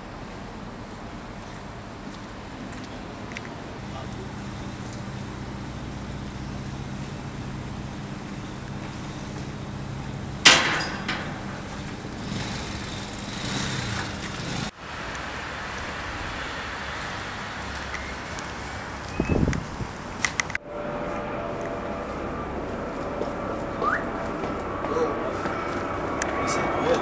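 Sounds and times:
steady background hum: 0:00.0 - 0:16.0, 0:19.9 - 0:27.0
loud bang: 0:10.5 - 0:12.8.

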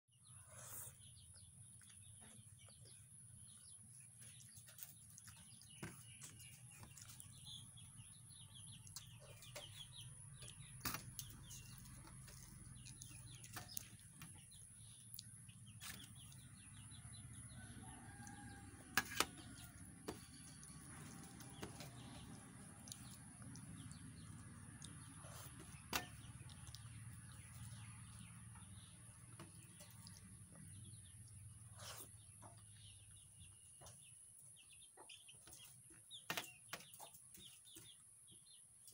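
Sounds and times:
chewing: 0:03.8 - 0:07.5, 0:10.4 - 0:16.5, 0:19.4 - 0:28.0, 0:29.2 - 0:32.1
fingers mixing food on steel plate: 0:10.4 - 0:16.4, 0:18.1 - 0:27.8.

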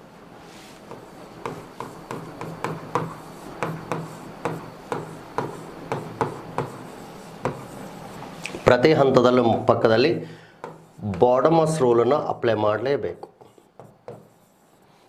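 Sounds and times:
pen tapping and scraping on board: 0:00.8 - 0:08.4, 0:10.6 - 0:11.3, 0:13.2 - 0:14.7.

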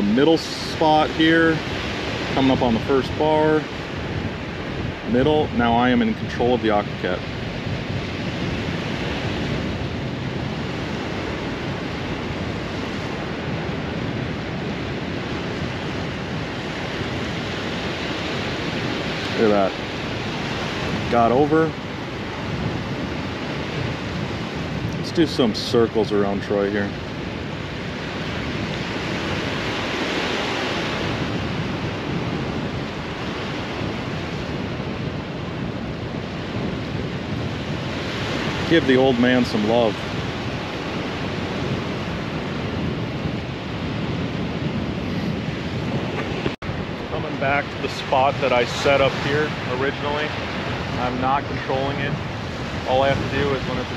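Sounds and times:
surf washing onto beach: 0:00.0 - 0:53.9
wind on microphone: 0:00.0 - 0:53.9.

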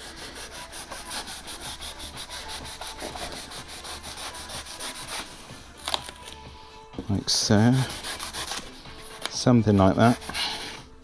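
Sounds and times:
knife sawing through floral foam: 0:00.0 - 0:05.3, 0:07.6 - 0:08.8.

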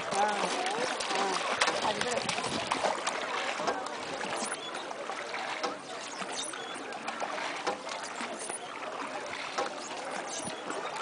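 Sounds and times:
water splashing against boat: 0:00.0 - 0:11.0.

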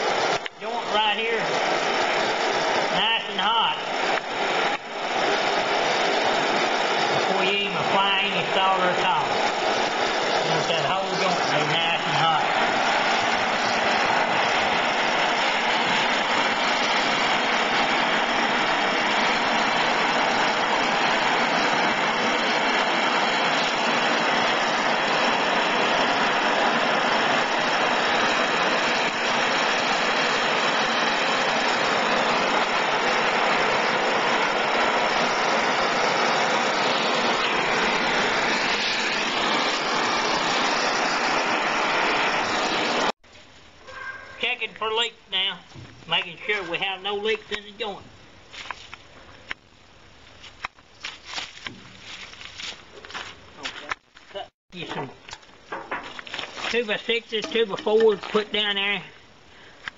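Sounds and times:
gas torch flame hissing: 0:00.0 - 0:43.2.

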